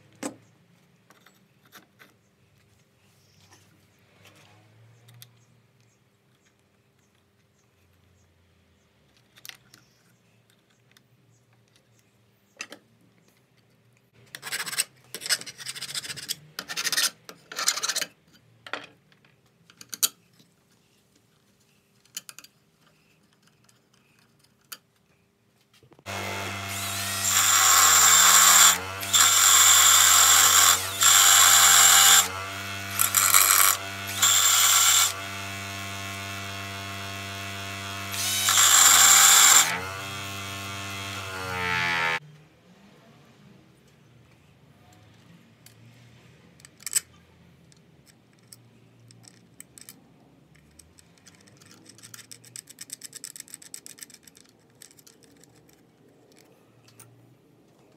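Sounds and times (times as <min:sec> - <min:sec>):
bench grinder humming: 0:26.1 - 0:42.2
metal grinding on wheel: 0:26.1 - 0:42.2
scrapes and knocks of parts handled: 0:46.6 - 0:57.9.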